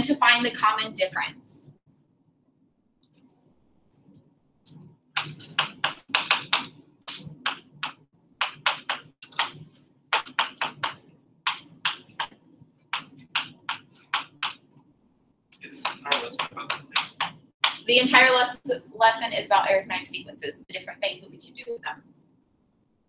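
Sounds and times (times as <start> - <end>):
marker writing on a board: 5.2 - 14.8, 15.7 - 17.9.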